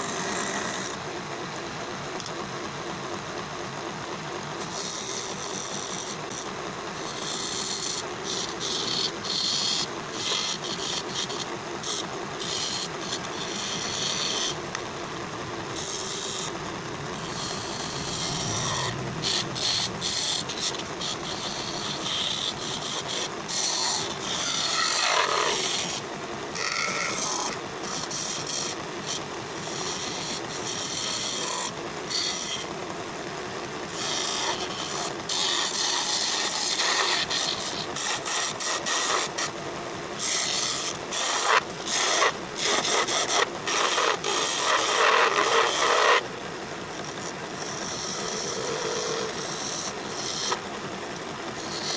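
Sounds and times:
chisel scraping spinning wood: 4.6s - 26.0s, 26.6s - 32.7s, 33.9s - 39.5s, 40.2s - 46.2s, 47.0s - 50.6s, 51.5s - 51.9s
wood lathe motor running: 7.0s - 26.0s, 26.6s - 32.6s, 40.2s - 46.2s, 47.5s - 50.5s, 51.5s - 51.9s.

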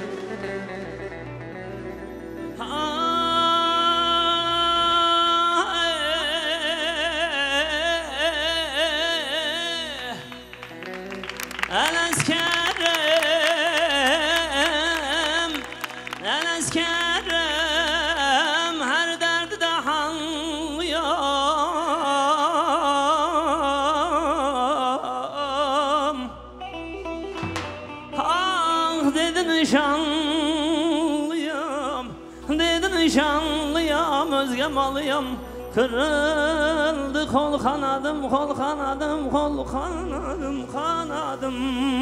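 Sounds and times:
live band accompaniment: 0.0s - 4.6s, 9.0s - 19.6s, 26.6s - 39.8s
man singing melisma: 2.6s - 26.8s, 28.1s - 42.0s
band accompaniment: 10.5s - 17.7s, 26.8s - 29.5s.

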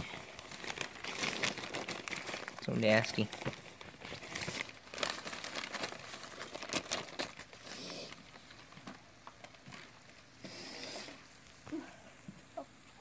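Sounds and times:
newspaper crinkling and rustling: 0.0s - 10.4s.

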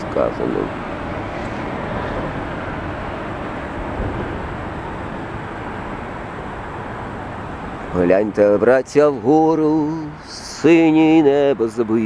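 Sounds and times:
outdoor rushing noise: 0.0s - 8.5s.

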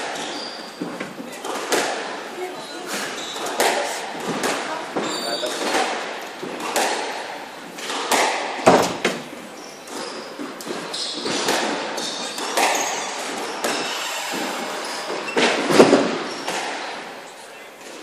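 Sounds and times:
squash ball hits and thuds: 3.2s - 9.3s, 9.9s - 17.0s.

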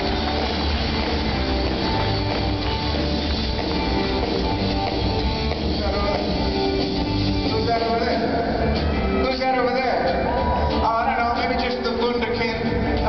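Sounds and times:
live rock band playing: 0.0s - 13.0s.

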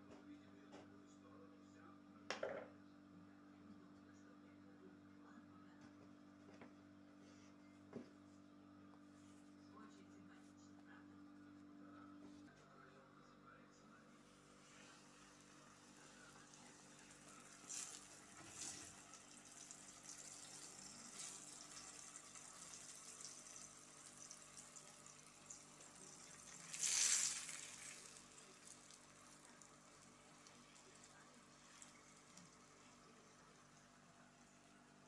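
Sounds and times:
food sizzling in hot oil: 15.4s - 32.7s.

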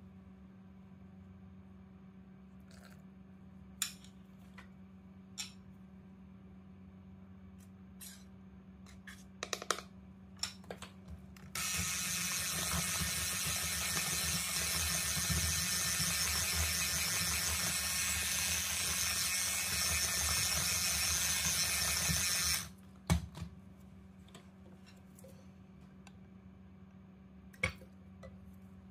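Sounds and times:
electric hand mixer beating batter: 11.6s - 22.7s.

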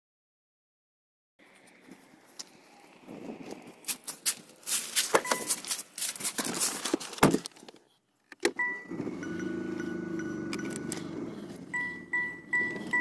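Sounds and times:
dashboard electronic chimes: 5.2s - 5.6s, 8.6s - 13.0s.

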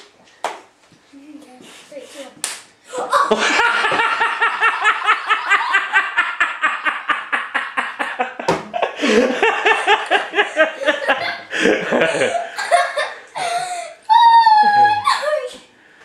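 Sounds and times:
children laughing: 2.9s - 15.5s.

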